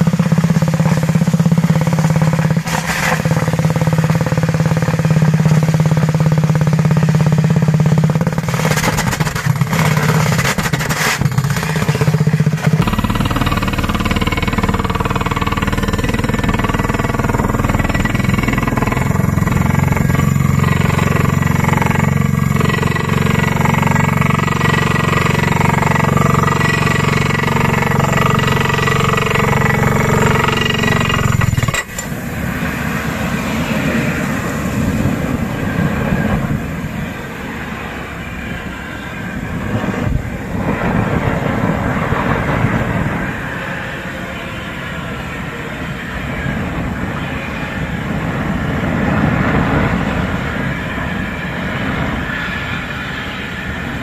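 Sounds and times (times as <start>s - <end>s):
drilling rig engine hum: 0.0s - 54.0s
rough air drilling noise: 8.4s - 35.5s.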